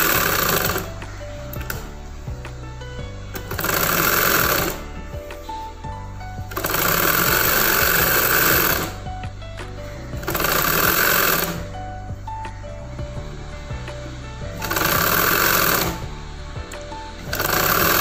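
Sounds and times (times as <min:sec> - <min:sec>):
sewing machine stitching: 0:00.0 - 0:00.9, 0:03.4 - 0:04.8, 0:06.5 - 0:09.0, 0:10.2 - 0:11.7, 0:14.6 - 0:16.0, 0:17.2 - 0:18.0.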